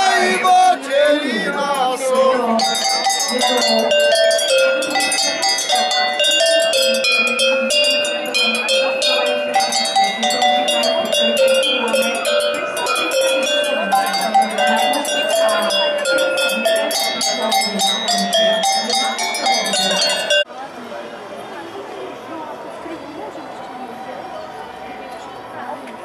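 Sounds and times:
tuned cowbells playing melody: 1.6 - 20.5.

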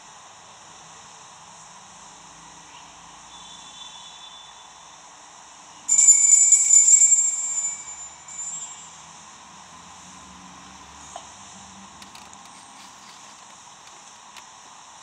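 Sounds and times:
altar bells jingling: 5.9 - 9.0.

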